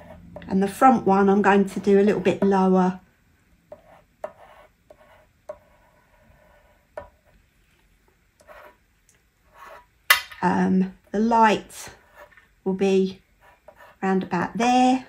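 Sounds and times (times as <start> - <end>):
pencil scratching on card: 3.7 - 7.3, 8.4 - 8.8, 9.5 - 9.9, 11.8 - 12.4, 13.4 - 14.3
pencil tapping: 3.7 - 7.4.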